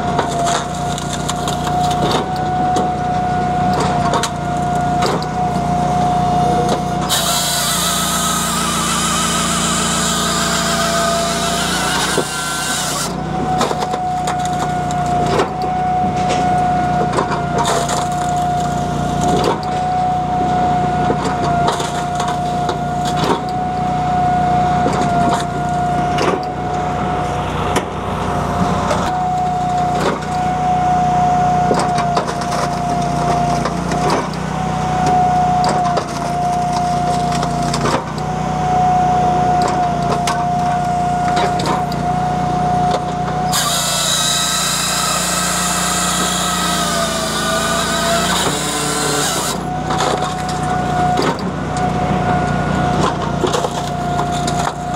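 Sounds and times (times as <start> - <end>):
engine hum with high whine: 0.0 - 54.9
logs cracking as they split: 0.2 - 2.3, 9.0 - 15.5, 17.2 - 19.6.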